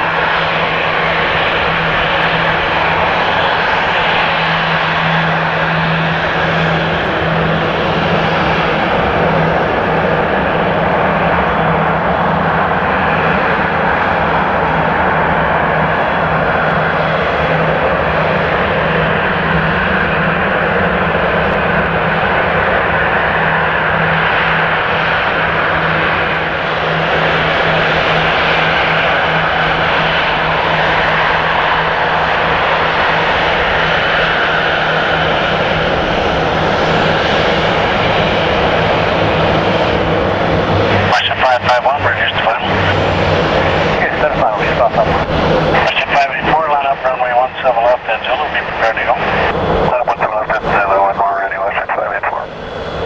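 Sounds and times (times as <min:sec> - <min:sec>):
jet engine rush: 0:00.0 - 0:53.0.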